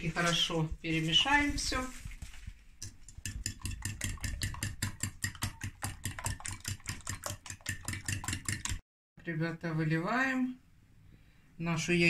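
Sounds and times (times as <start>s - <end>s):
fork beating eggs in a bowl: 2.8s - 8.8s.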